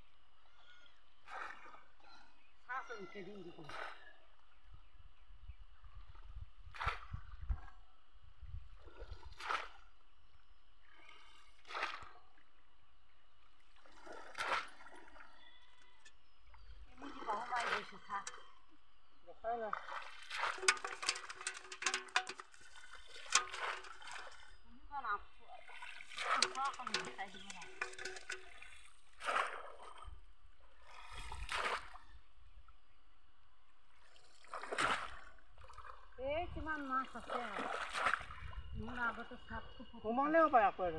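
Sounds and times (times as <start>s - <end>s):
splashes of pond water: 1.2s - 2.0s, 8.7s - 10.0s, 10.9s - 12.5s, 13.5s - 15.5s, 16.5s - 18.7s, 19.5s - 24.7s, 25.4s - 32.2s, 33.9s - 39.3s.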